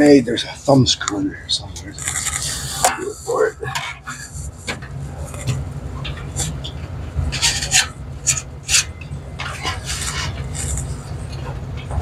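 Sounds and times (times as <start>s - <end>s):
steady low hum: 0.0s - 12.0s
rubbing and scraping: 7.3s - 11.6s.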